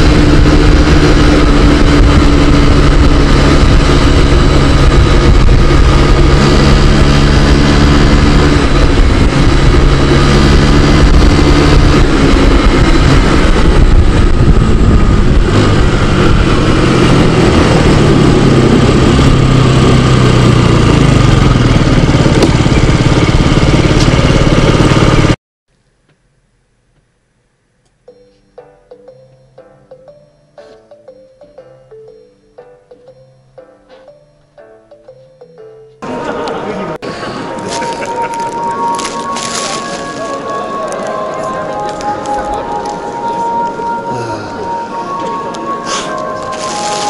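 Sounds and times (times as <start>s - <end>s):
scooter engine running: 0.0s - 25.4s, 34.0s - 44.9s, 45.6s - 47.0s
wind and road noise: 0.0s - 25.4s, 36.0s - 47.0s.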